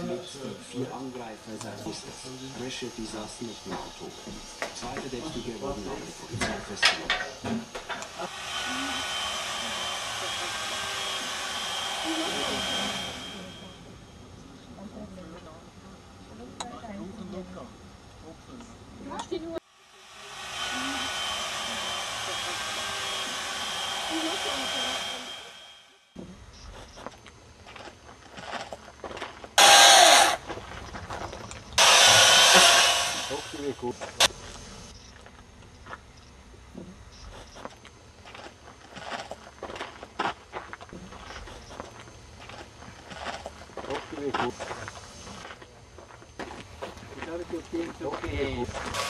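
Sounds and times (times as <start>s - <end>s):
chainsaw running: 1.6s - 13.9s, 19.6s - 25.9s, 29.6s - 30.5s, 31.7s - 34.3s, 47.0s - 49.0s.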